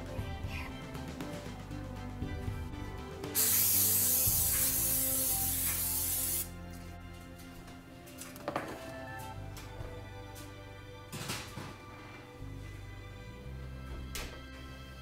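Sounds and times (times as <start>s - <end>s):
aerosol spray hissing on metal: 3.3s - 6.5s.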